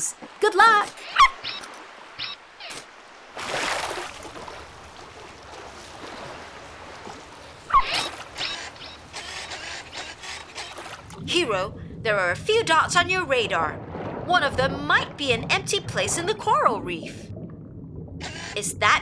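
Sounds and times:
dog yip: 0:01.1 - 0:01.6
muffled underwater wash: 0:10.9 - 0:19.0
bubbly blips: 0:11.0 - 0:19.0.

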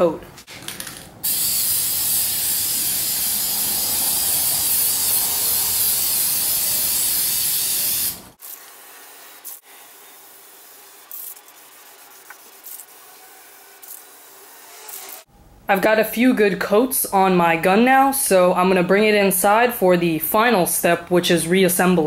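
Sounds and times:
aerosol spray can hissing: 0:01.2 - 0:15.3.

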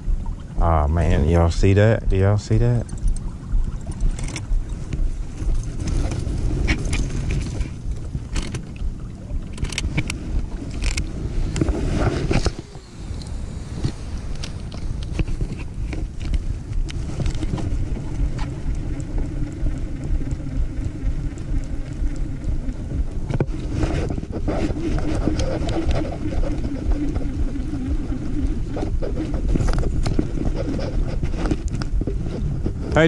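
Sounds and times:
low even hum: 0:00.0 - 0:33.0
water noise around boat: 0:00.0 - 0:33.0
wind: 0:00.0 - 0:33.0
fishing reel clicks and rattles: 0:02.8 - 0:04.5, 0:09.4 - 0:11.7.

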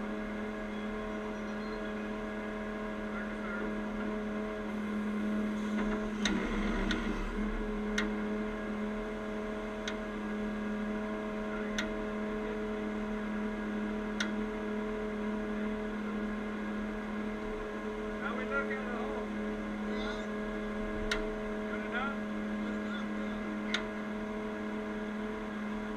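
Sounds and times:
truck diesel engine idling: 0:00.0 - 0:25.9
sharp clicks: 0:21.0 - 0:21.3.

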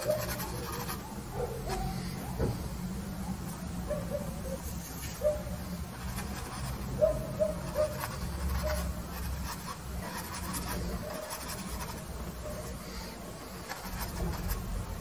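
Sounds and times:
paintbrush strokes on canvas: 0:06.0 - 0:07.0, 0:07.6 - 0:15.0.

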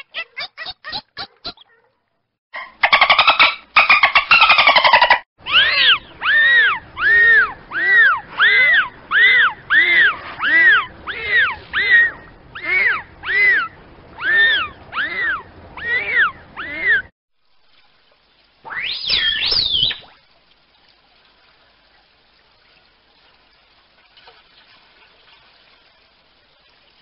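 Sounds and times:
dolphin whistles: 0:18.7 - 0:20.1.

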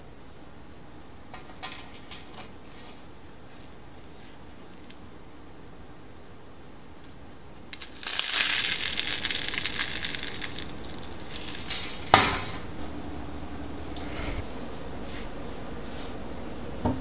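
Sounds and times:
toast crunching in a hand: 0:07.7 - 0:12.2.

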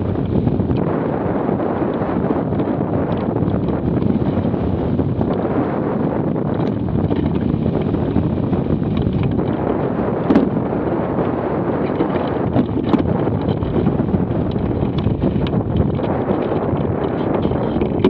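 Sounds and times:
wind buffeting microphone: 0:00.0 - 0:18.0
sharp knocks: 0:10.2 - 0:10.6.

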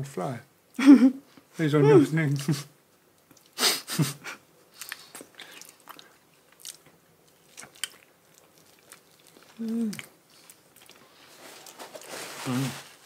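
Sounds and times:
wet smacking and chewing: 0:03.2 - 0:03.6, 0:04.7 - 0:12.1.

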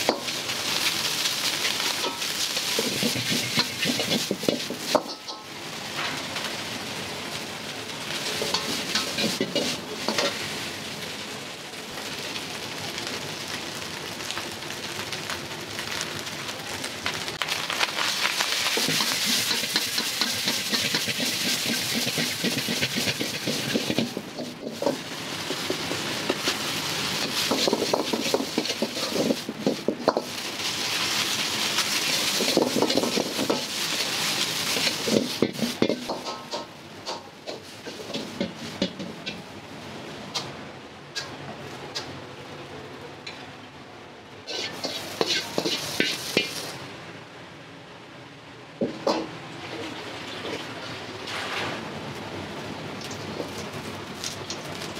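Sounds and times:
food sizzling in a wok: 0:00.0 - 0:42.1, 0:44.4 - 0:47.4, 0:48.7 - 0:54.9
metal ladle scraping a pan: 0:01.7 - 0:05.3, 0:18.8 - 0:25.0, 0:44.5 - 0:46.7.

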